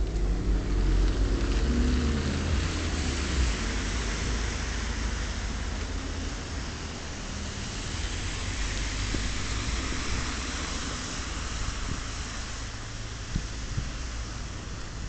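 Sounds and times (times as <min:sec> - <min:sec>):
deep rumble: 0:00.0 - 0:15.0
wet road and rain hiss: 0:00.0 - 0:15.0.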